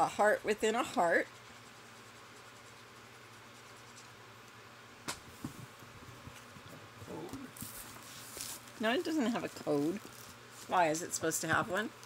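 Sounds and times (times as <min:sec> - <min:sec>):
handling taps and rustles: 0:11.3 - 0:12.0.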